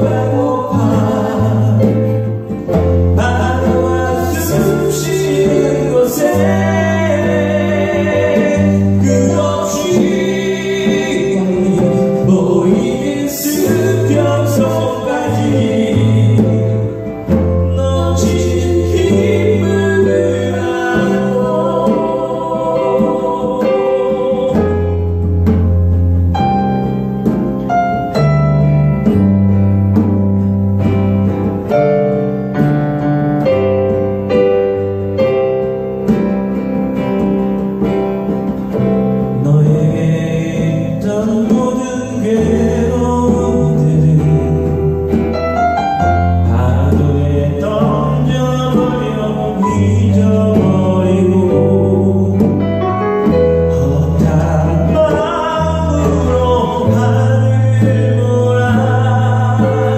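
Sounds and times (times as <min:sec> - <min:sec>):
man singing: 0:00.0 - 0:25.6, 0:38.7 - 0:59.9
electric bass: 0:00.0 - 0:59.9
hand drum: 0:00.0 - 0:59.9.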